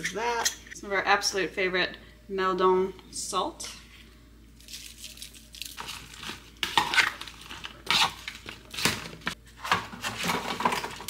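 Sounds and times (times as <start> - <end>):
sprouts clattering in a bowl: 4.6 - 6.4.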